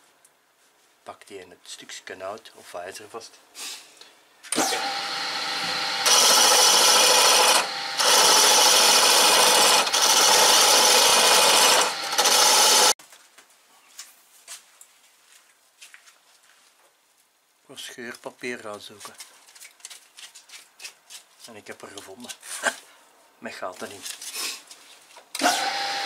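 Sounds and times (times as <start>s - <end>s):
lathe tool scraping wood: 4.6s - 13.0s.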